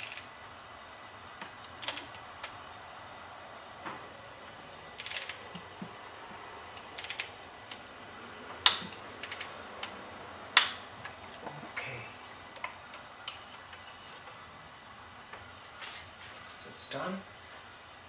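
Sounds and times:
ratchet wrench clicking: 0:00.0 - 0:00.3, 0:05.0 - 0:05.5, 0:06.8 - 0:07.3, 0:09.2 - 0:09.5.

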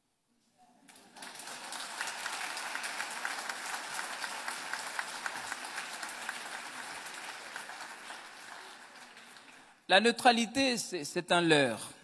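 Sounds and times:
audience applauding: 0:00.9 - 0:09.9.

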